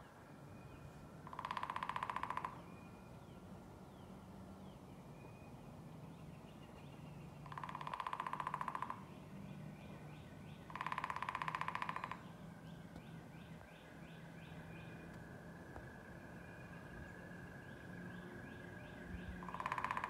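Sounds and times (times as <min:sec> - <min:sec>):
woodpecker drumming on wood: 0:01.2 - 0:02.6, 0:07.4 - 0:09.1, 0:10.6 - 0:12.4, 0:19.2 - 0:20.0.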